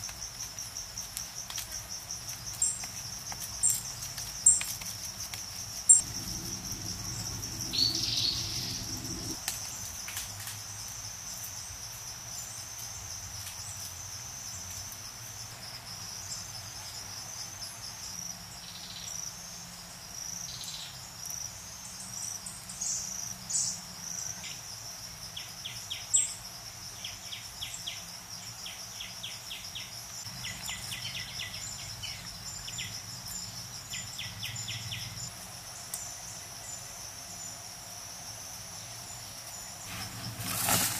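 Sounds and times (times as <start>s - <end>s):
high-pitched insect drone: 5.9s - 9.4s
bird chirps: 7.0s - 9.4s.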